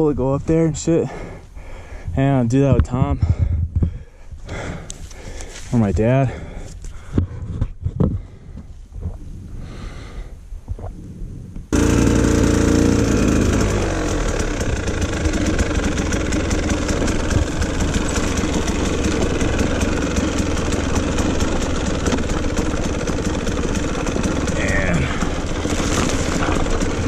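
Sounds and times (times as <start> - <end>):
dirt bike two-stroke engine: 11.7 - 27.0.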